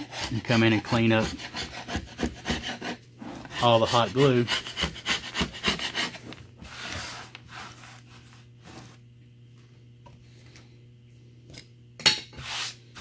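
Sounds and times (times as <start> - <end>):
chisel scraping glue: 0.0 - 7.3
low steady hum: 0.0 - 13.0.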